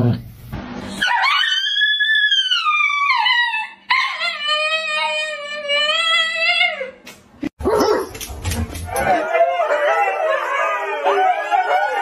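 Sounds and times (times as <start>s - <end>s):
dog howling: 1.0s - 7.0s, 8.9s - 12.0s.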